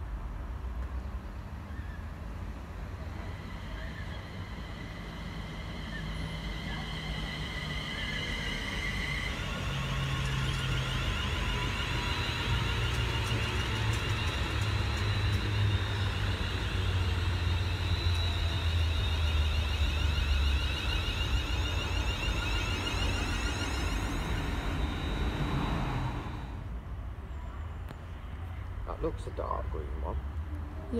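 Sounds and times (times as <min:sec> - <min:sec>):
train rumbling past: 0:00.0 - 0:27.6, 0:28.7 - 0:30.9
low hum: 0:02.3 - 0:26.9
high whine: 0:02.8 - 0:26.8.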